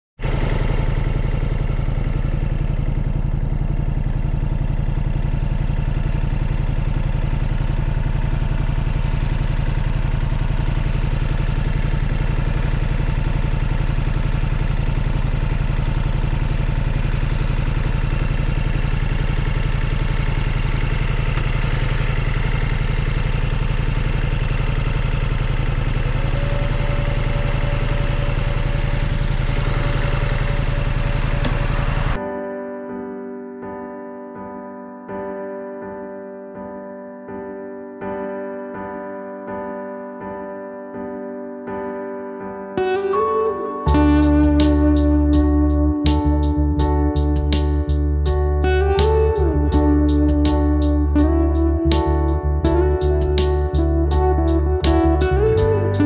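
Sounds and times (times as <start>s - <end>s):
motorcycle engine rumbling: 0.2s - 32.2s, 43.9s - 56.0s.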